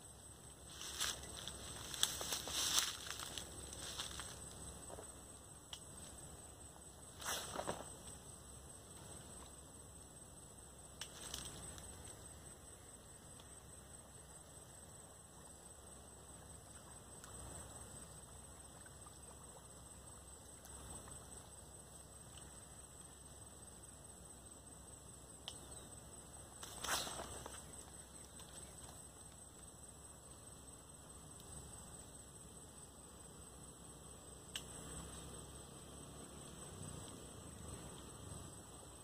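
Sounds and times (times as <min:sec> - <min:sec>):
outdoor background hiss: 0:00.0 - 0:39.0
grass and brush rustling: 0:00.6 - 0:05.1, 0:11.1 - 0:12.1, 0:26.6 - 0:29.0.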